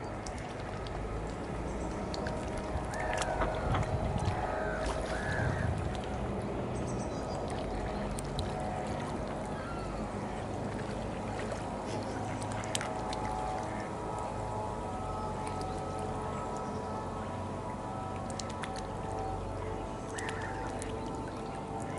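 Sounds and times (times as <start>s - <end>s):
helicopter droning overhead: 0.0s - 21.9s.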